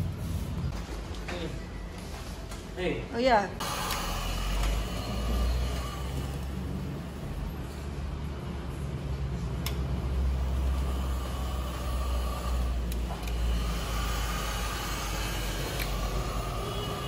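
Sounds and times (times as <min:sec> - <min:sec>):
heat gun whine: 0:03.6 - 0:07.0, 0:10.1 - 0:17.0
heat gun fan blowing: 0:03.6 - 0:17.0.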